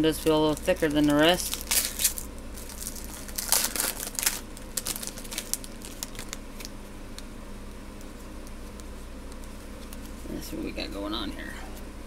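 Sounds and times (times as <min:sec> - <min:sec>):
foil wrapper crinkling: 0:00.1 - 0:06.8.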